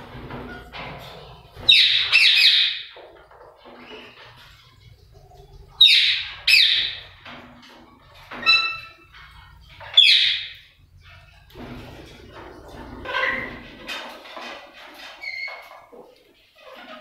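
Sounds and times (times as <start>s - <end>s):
parakeets screeching: 1.6s - 3.0s, 5.8s - 7.2s, 8.4s - 9.1s, 9.8s - 10.6s, 13.0s - 13.8s
faint bird chirping: 3.7s - 7.2s, 9.8s - 11.5s.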